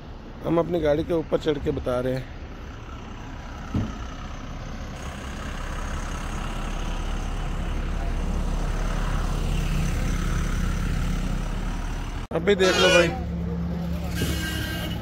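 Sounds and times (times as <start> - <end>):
heavy truck engine running: 0.0 - 15.0.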